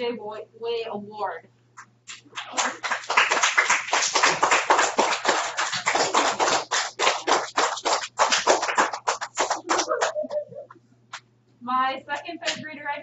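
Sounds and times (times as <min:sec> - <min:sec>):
children clapping: 0:02.1 - 0:11.3.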